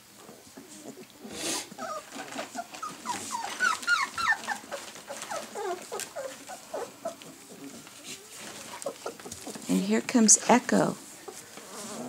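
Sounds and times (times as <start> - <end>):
rustling noise: 0.0 - 12.0
puppies whimpering and yipping: 0.6 - 9.6.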